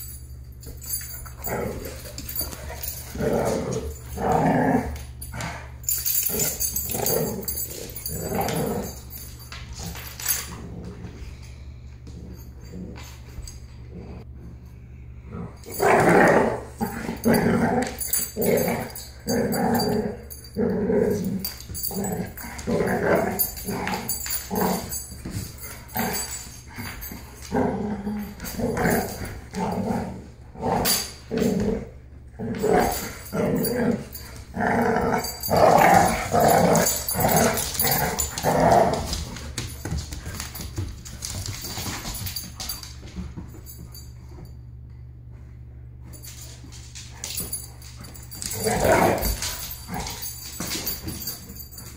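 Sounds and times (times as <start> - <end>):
puppies growling: 1.1 - 9.2, 15.2 - 42.4, 47.3 - 51.4.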